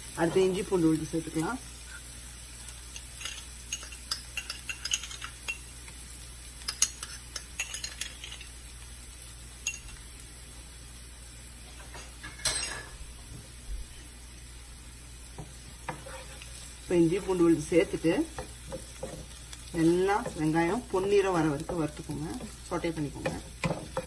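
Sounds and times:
onions sizzling in a pan: 0.0 - 24.0
spoon clinking and tapping: 3.2 - 5.6, 6.7 - 8.5, 9.6 - 10.0.

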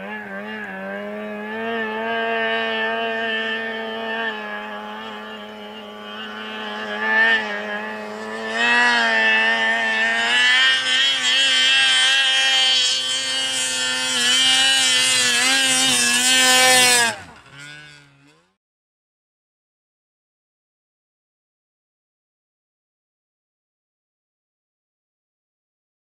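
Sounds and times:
snowmobile engine revving: 0.0 - 18.6.

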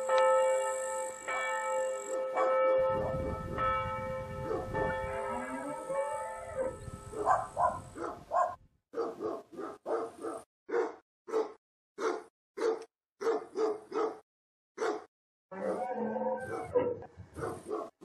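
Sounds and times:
church bell ringing: 0.0 - 7.4
dog barking: 2.4 - 3.2, 4.4 - 5.0, 6.6 - 14.2, 14.8 - 18.0.

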